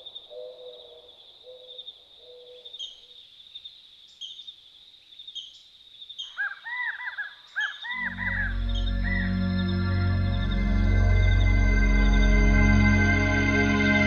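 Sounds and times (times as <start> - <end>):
sharp bird chirps: 0.0 - 4.6, 5.2 - 12.4
loud arched bird calls: 5.2 - 12.4
high bird trilling: 6.2 - 9.7
low repeated bird notes: 7.5 - 14.0.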